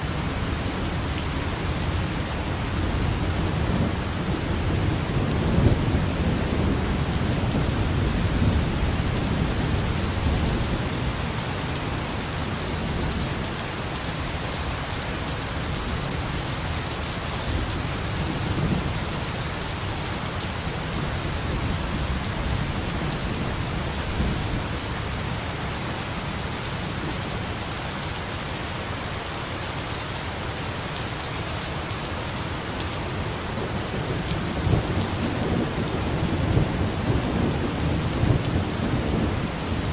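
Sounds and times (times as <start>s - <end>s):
heavy rain pouring: 0.0s - 39.9s
low rumbling thunder: 3.0s - 11.2s, 33.7s - 39.9s.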